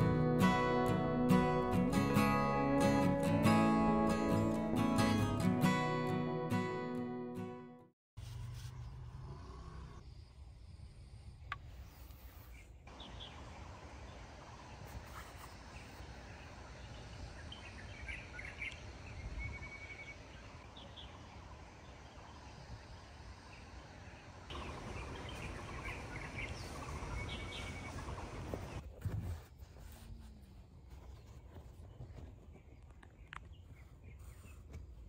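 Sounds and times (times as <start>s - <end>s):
birds chirping: 12.4s - 28.8s.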